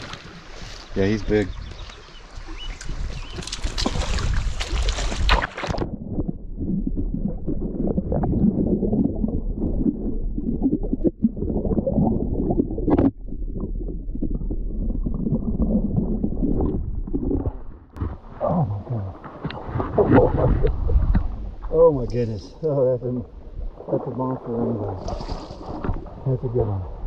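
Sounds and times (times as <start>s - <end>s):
river water splashing: 0.0s - 5.8s
muffled water rumbling and gurgling: 0.0s - 27.0s.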